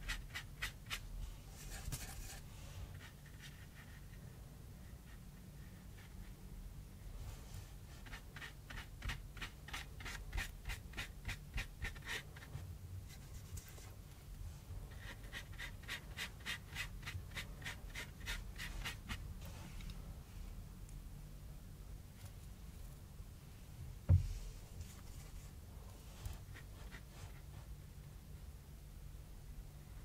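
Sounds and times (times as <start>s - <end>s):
paintbrush scratching on cardboard: 7.8s - 14.0s, 14.9s - 19.6s, 26.0s - 27.7s.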